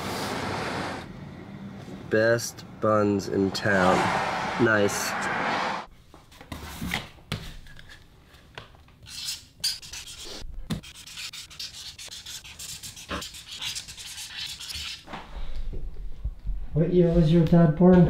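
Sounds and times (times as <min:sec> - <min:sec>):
marker scratching on cardboard: 0:09.1 - 0:15.0.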